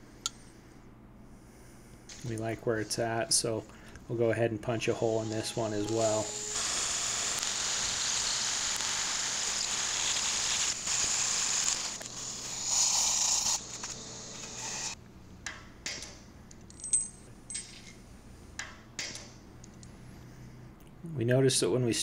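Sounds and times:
vacuum running: 4.6s - 15.0s
hammer drill boring into concrete: 5.0s - 15.0s
metallic clinks: 16.6s - 18.0s.

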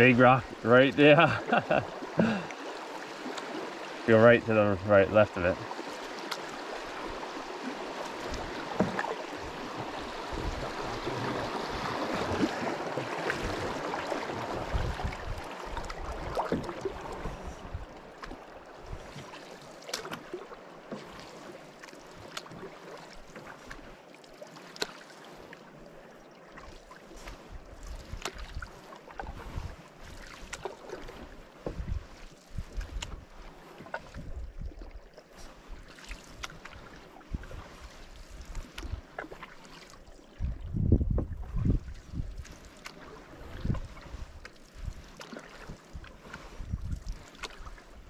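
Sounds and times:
river water rushing: 0.0s - 25.7s
paddle splashes and drips: 0.0s - 48.0s
paddle knocks: 8.1s - 14.7s
wind rumble on microphone: 8.2s - 12.7s, 13.3s - 18.0s, 27.2s - 29.8s, 31.2s - 33.3s, 34.0s - 35.0s, 37.2s - 39.1s, 40.3s - 42.7s, 43.3s - 48.0s.

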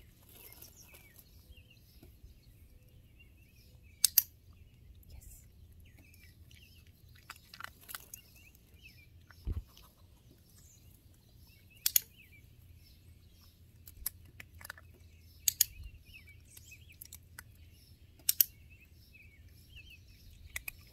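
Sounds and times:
birds chirping: 0.0s - 20.9s
training clicker clicks: 4.0s - 4.3s, 11.8s - 12.2s, 15.4s - 15.8s, 18.2s - 18.6s.

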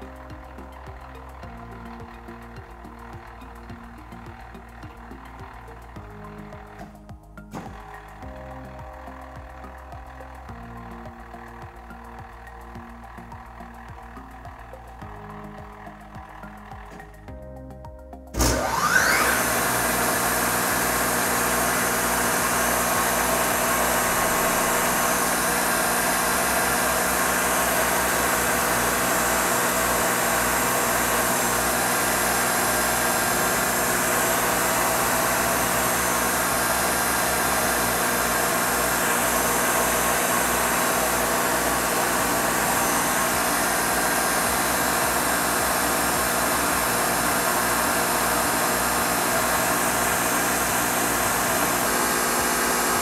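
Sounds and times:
planer running with whining hiss: 0.0s - 17.3s, 18.3s - 53.0s.

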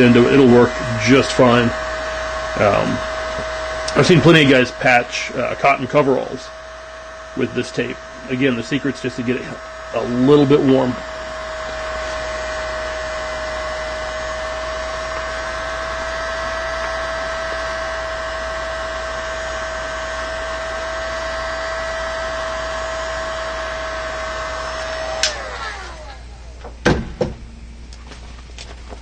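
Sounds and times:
heat gun running: 0.0s - 27.4s
heat gun switch click: 25.2s - 25.4s.

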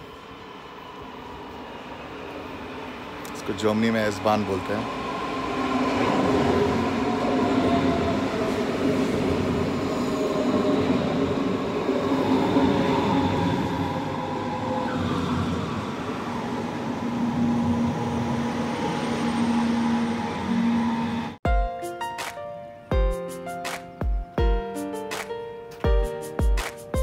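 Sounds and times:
electric train rolling past: 0.0s - 21.4s.

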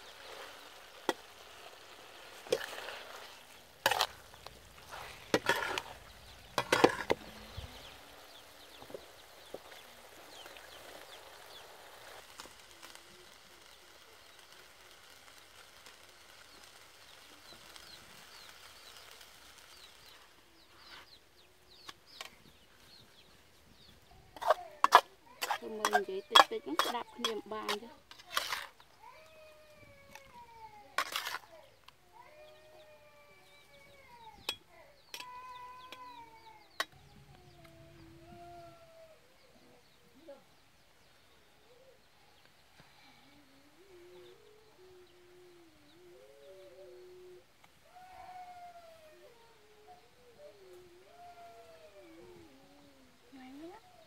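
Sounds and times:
food sizzling in a wok: 0.0s - 23.1s, 23.7s - 29.0s
metal spatula scraping a wok: 2.4s - 7.9s, 24.4s - 28.8s, 31.0s - 31.5s.

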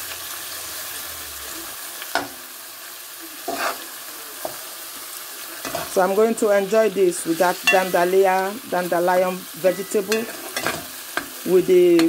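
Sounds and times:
stew sizzling in a pot: 0.0s - 12.0s
metal spoon stirring: 9.7s - 11.4s.

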